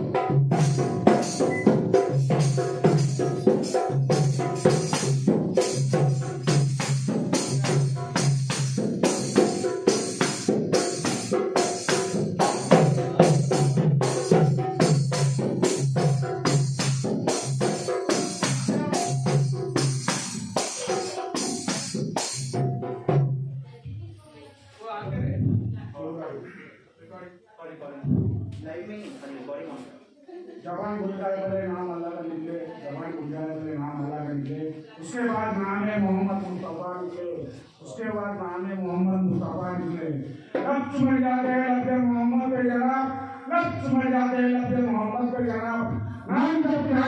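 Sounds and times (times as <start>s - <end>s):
fast drum strikes: 0.0s - 23.5s.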